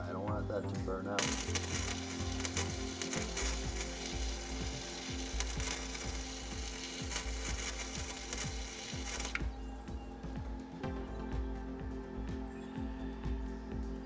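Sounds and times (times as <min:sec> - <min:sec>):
welding arc crackling and sizzling: 0:01.1 - 0:10.5.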